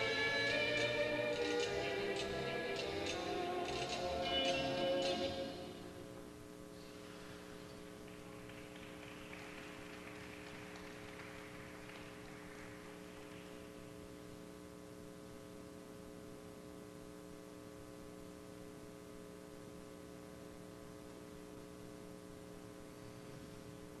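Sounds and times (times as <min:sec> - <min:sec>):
faint hiss: 0:00.0 - 0:14.3
electrical mains hum: 0:00.0 - 0:24.0.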